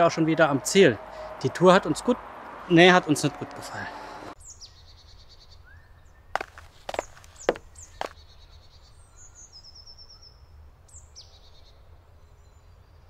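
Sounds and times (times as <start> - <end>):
songbirds singing: 4.4 - 13.0
sharp knocks like footsteps: 6.4 - 8.2.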